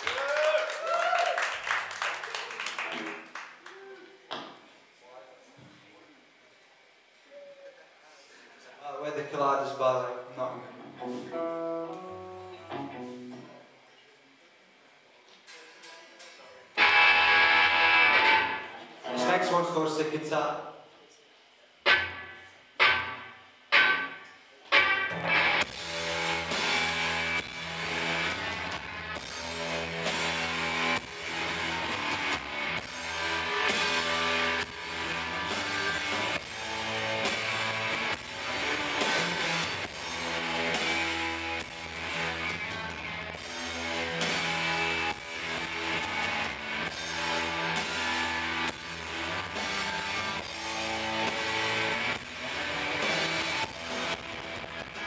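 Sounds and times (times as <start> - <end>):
electric guitars: 10.9 - 13.6, 16.8 - 19.8, 21.8 - 55.0
bass guitar: 11.0 - 13.5, 21.9 - 55.0
drum kit beat: 24.8 - 55.0.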